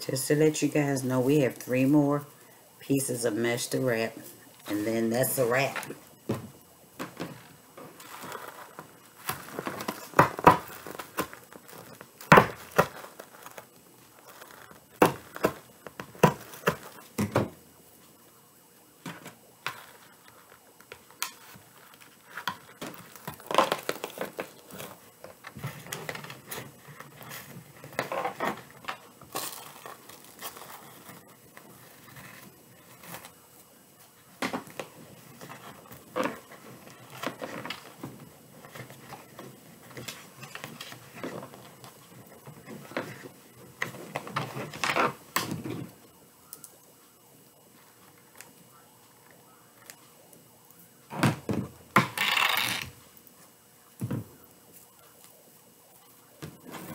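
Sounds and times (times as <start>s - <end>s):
mesh rustling and crinkling: 3.5s - 48.6s.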